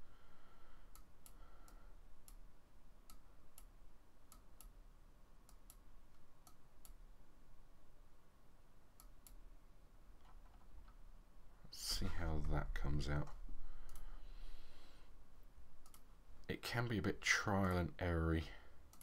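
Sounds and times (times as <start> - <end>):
low steady hum: 0.0 - 19.0
computer mouse clicking: 9.0 - 9.4, 13.8 - 14.1, 15.8 - 16.1.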